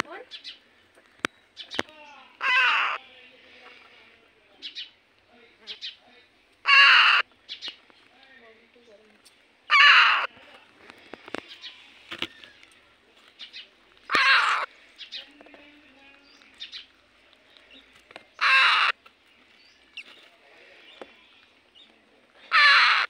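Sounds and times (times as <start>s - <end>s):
parrot chicks harsh calls: 2.4s - 3.0s, 6.6s - 7.7s, 9.7s - 10.3s, 14.1s - 14.7s, 18.4s - 19.0s, 22.5s - 23.0s.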